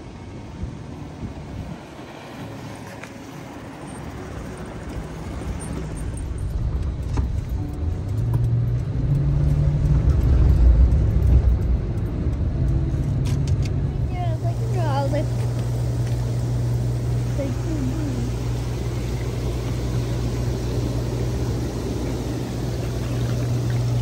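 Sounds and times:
car engine hum: 0:00.0 - 0:24.0
road noise: 0:00.0 - 0:24.0.

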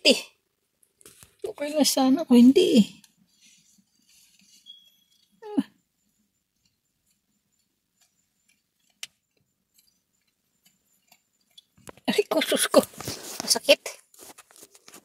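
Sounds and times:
faint ticks: 0:06.0 - 0:12.1.

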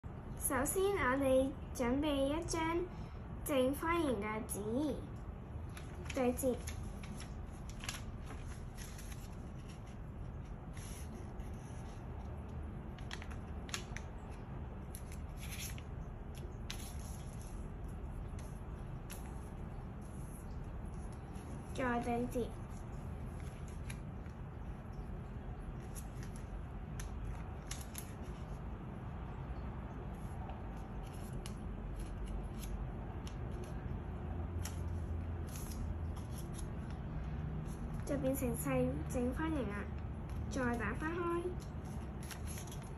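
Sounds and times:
low steady hum: 0:00.0 - 0:42.9
low steady rumble: 0:00.0 - 0:42.9
paper rustling and crinkling: 0:05.6 - 0:25.0, 0:25.7 - 0:28.6, 0:30.2 - 0:33.9, 0:34.6 - 0:38.2, 0:41.5 - 0:42.9.

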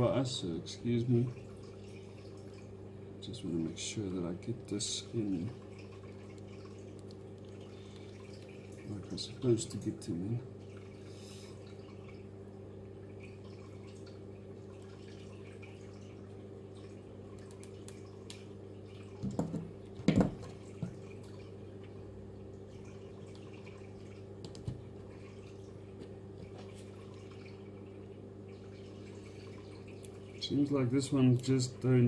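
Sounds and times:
steady low hum: 0:00.0 - 0:32.0.

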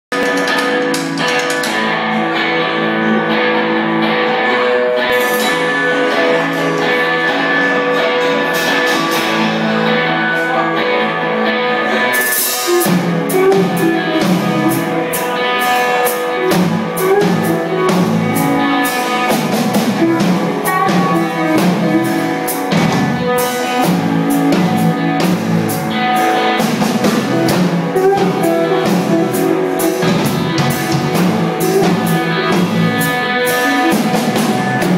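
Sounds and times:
drum kit: 0:00.1 - 0:34.9
electric guitar: 0:00.1 - 0:34.9
rock band playing: 0:00.1 - 0:34.9.

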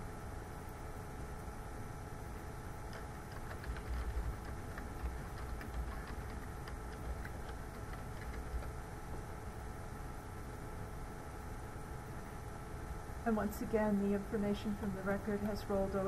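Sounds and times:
room hum: 0:00.0 - 0:16.0
keyboard keys clicking: 0:02.9 - 0:08.7.

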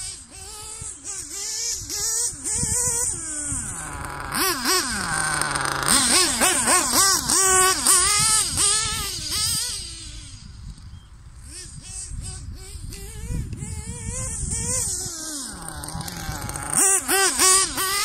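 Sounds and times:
small engine revving: 0:00.0 - 0:18.0.

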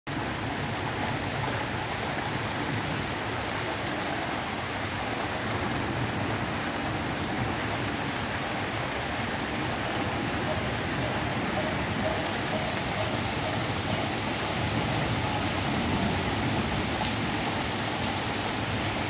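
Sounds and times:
rain falling on leaves: 0:00.1 - 0:19.0.

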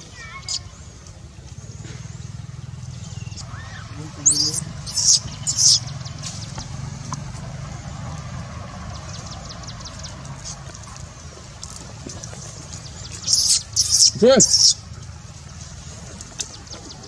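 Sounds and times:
baby monkey shrill cry: 0:03.4 - 0:05.8, 0:13.3 - 0:14.8
baby monkey faint squeaks: 0:04.2 - 0:05.9, 0:13.2 - 0:14.8.

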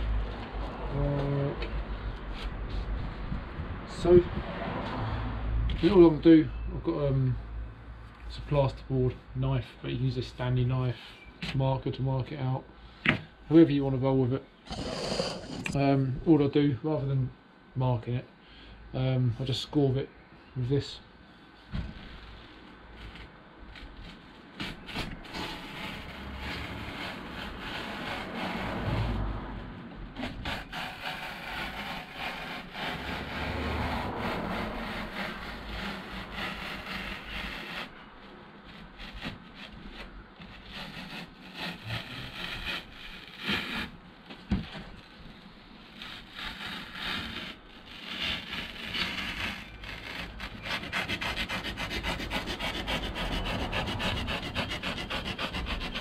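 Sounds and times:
knife scraping foam: 0:14.7 - 0:15.8, 0:21.9 - 0:56.0.

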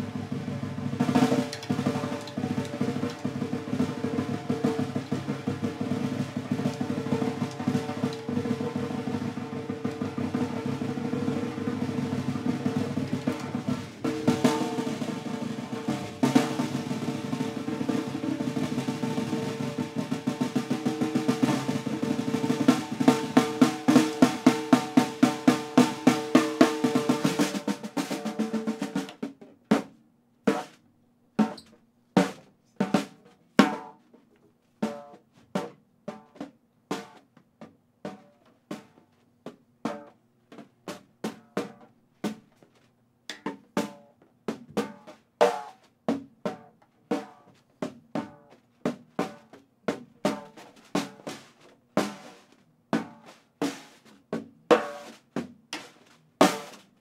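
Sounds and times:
snare drum roll and strokes: 0:00.0 - 0:29.9, 0:48.2 - 0:57.0.

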